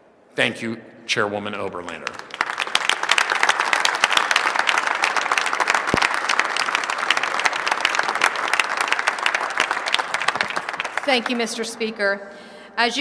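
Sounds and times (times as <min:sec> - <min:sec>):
crowd applauding: 0:01.8 - 0:12.0.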